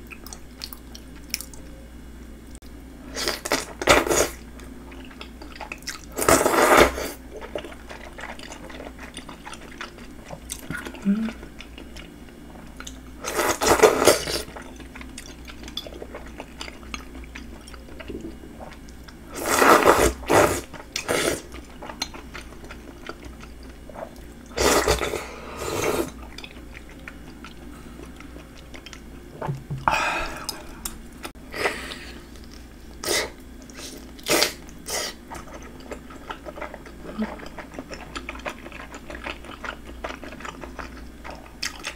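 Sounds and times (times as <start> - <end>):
quiet wet chewing: 33.6 - 41.9.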